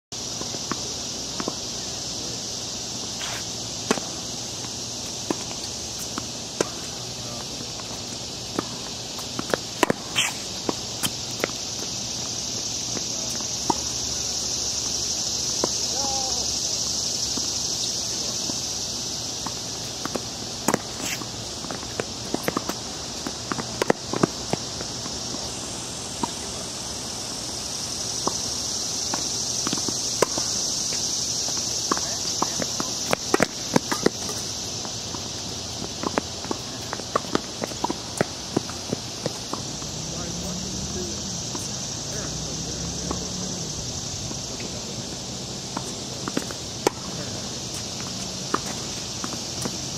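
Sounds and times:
high insect drone: 0.1s - 49.9s
tennis ball struck by rackets: 3.2s - 12.2s, 19.4s - 25.4s, 29.1s - 40.2s, 45.7s - 49.9s
tennis ball bouncing on hard court: 3.3s - 14.0s, 19.4s - 25.5s, 29.1s - 40.0s, 44.6s - 49.9s.

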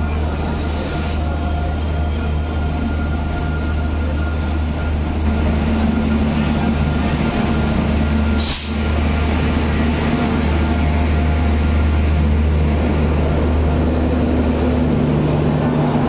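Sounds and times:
electric locomotive humming: 0.0s - 16.0s
air hiss: 8.4s - 8.8s.

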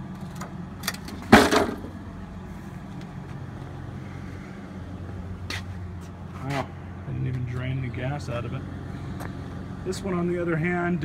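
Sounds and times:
steady low hum: 0.0s - 11.0s
mower thud on concrete: 1.3s - 1.9s.

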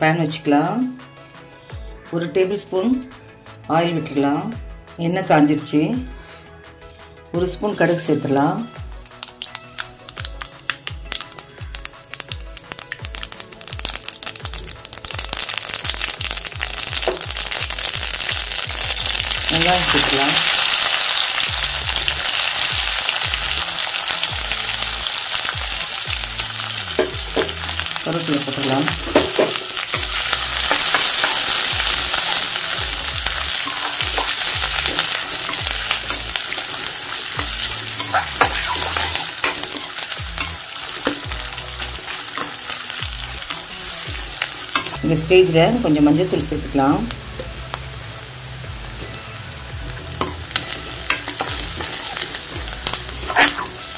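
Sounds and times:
hot oil sizzling: 7.4s - 53.9s
spoon scraping pan: 53.2s - 53.8s.

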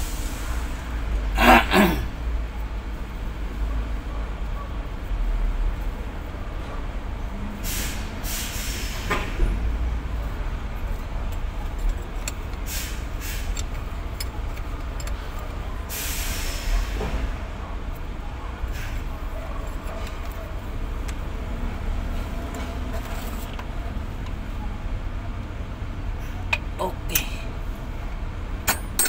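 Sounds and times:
wrench clicking on metal fittings: 11.3s - 15.4s, 28.7s - 29.0s.

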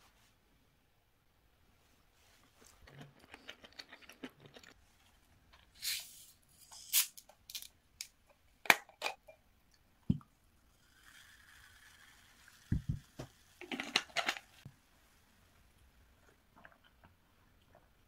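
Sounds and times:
carbonation hissing: 10.1s - 14.7s.

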